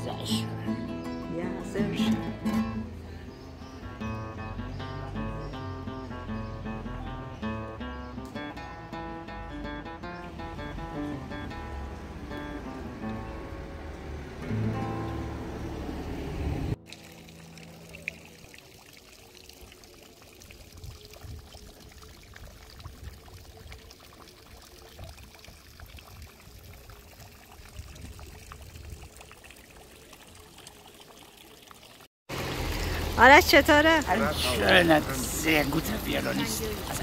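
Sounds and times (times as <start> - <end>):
guitar music: 0.0 - 17.6
fountain water splashing into basin: 16.7 - 37.0.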